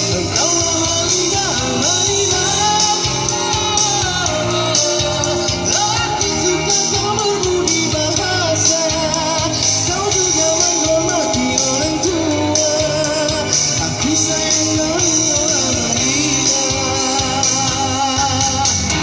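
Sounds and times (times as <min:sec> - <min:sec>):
electric guitar: 0:00.0 - 0:19.0
live rock band: 0:00.0 - 0:19.0
person singing: 0:00.0 - 0:19.0.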